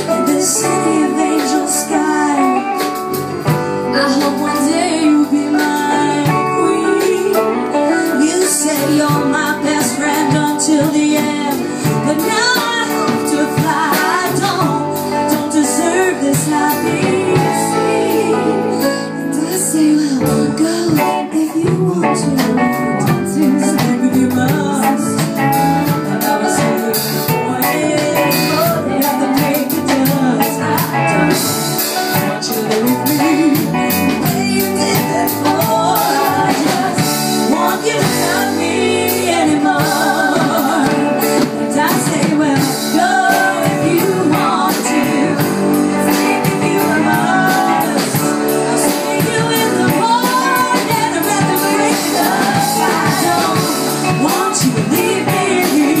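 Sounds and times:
woman singing lead: 0.0s - 56.0s.

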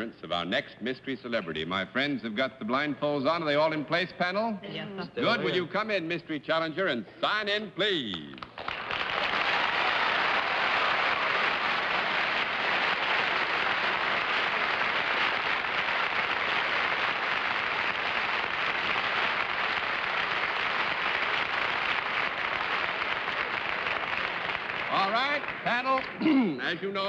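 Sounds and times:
audience applauding: 8.4s - 27.0s.

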